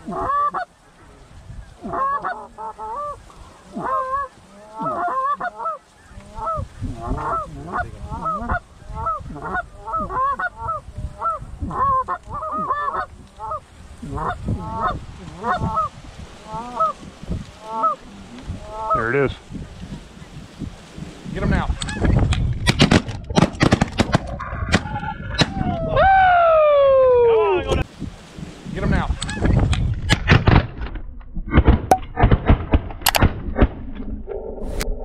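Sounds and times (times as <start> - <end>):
geese honking: 0.0 - 0.7, 1.8 - 19.1.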